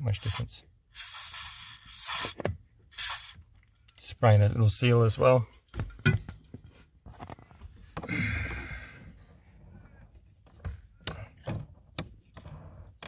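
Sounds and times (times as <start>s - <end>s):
aerosol spray hiss: 1.0s - 3.4s.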